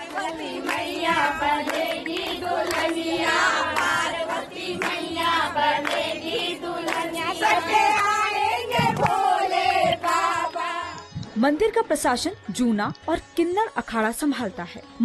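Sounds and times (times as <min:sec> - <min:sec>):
hands clapping: 0:00.0 - 0:09.3
women singing in chorus: 0:00.0 - 0:11.2.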